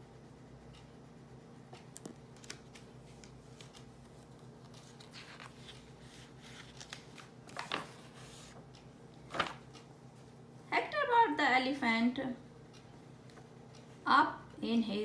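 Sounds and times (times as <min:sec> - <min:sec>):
faint steady hum: 0:00.0 - 0:15.0
page flipping: 0:02.0 - 0:08.6, 0:09.3 - 0:09.7
paper pages rustling: 0:02.0 - 0:08.6, 0:09.3 - 0:09.7.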